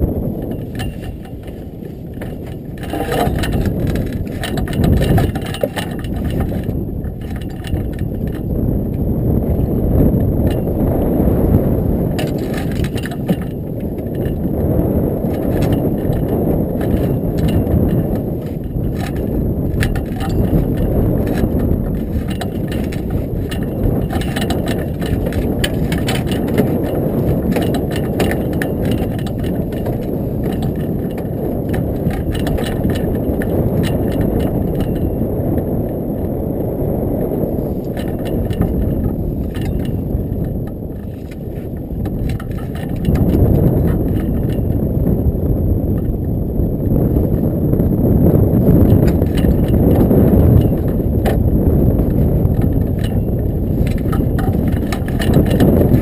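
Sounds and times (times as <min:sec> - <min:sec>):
wind buffeting microphone: 0:00.0 - 0:56.0
light clicks and knocks: 0:00.4 - 0:09.0, 0:12.1 - 0:14.5, 0:15.2 - 0:35.7.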